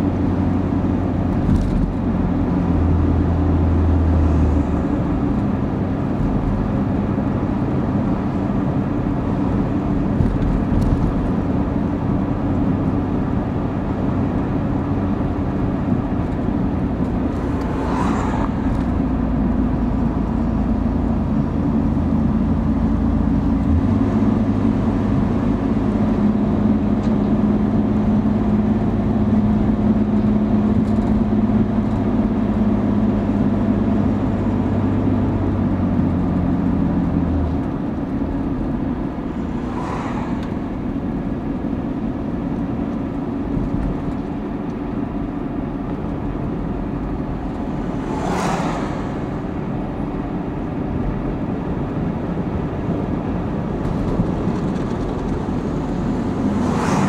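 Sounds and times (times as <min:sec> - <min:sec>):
car engine and tyre drone: 0:00.0 - 0:57.0.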